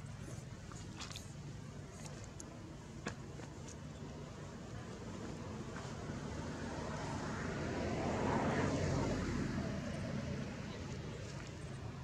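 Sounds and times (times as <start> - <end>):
vehicle passing by: 5.8 - 12.0.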